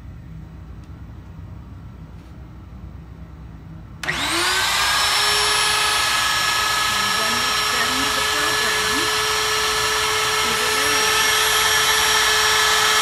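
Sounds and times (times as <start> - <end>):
router motor spinning up: 4.0 - 13.0.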